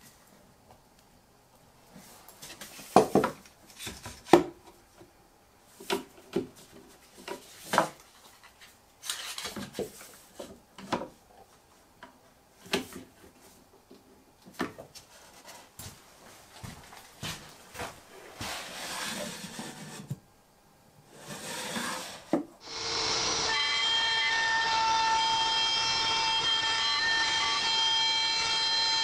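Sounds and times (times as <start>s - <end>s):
rubbing and scraping on wood: 16.6s - 20.2s, 21.1s - 22.5s.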